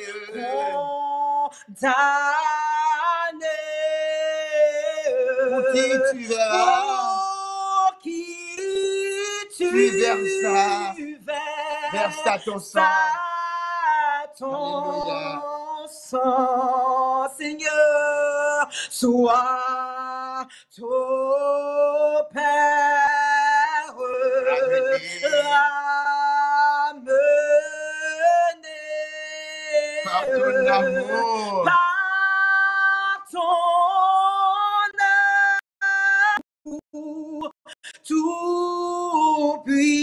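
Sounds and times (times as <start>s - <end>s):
man and woman singing a hymn: 0.0s - 36.2s, 38.0s - 40.0s.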